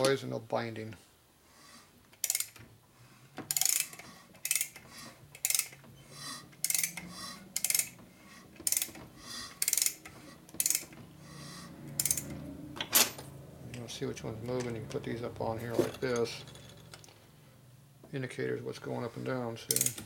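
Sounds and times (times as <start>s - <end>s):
ratchet wrench clicking: 2.2s - 2.6s, 3.5s - 4.8s, 5.4s - 5.8s, 6.6s - 8.0s, 8.6s - 9.0s, 9.6s - 11.0s, 11.9s - 12.4s, 19.7s - 20.0s.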